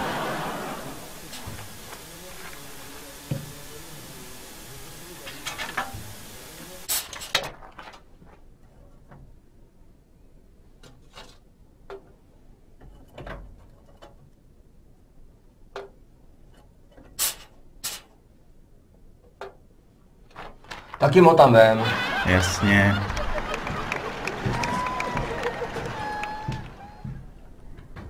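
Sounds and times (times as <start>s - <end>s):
steady hiss: 0.0s - 7.4s, 17.2s - 18.2s, 20.9s - 27.6s
switches clicking and knocking: 0.9s - 7.7s, 15.7s - 16.0s.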